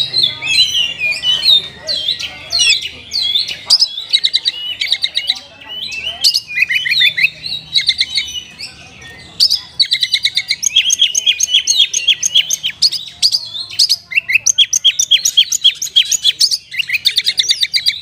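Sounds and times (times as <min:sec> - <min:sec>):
bird singing whistles and trills: 0:00.0 - 0:18.0.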